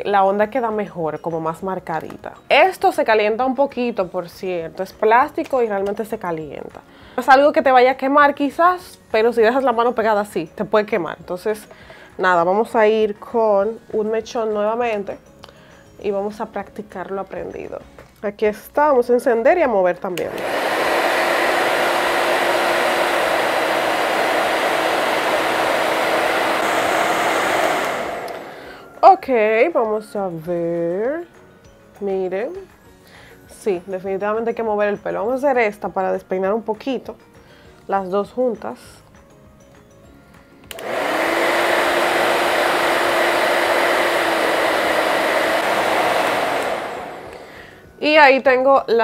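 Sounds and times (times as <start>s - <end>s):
hair dryer blowing air: 20.2s - 29.0s, 40.7s - 47.8s.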